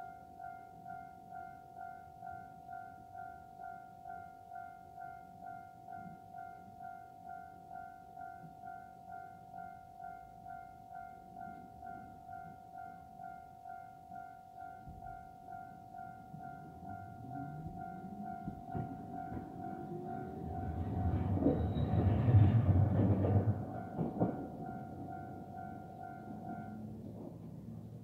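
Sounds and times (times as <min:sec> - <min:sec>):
electronic two-tone crossing bell: 0:00.0 - 0:27.0
tram rumble and motor whine: 0:16.0 - 0:28.0.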